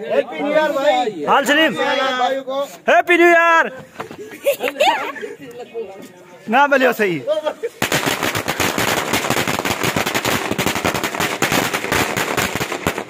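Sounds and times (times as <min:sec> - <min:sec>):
firecrackers banging rapidly: 0:07.8 - 0:13.0.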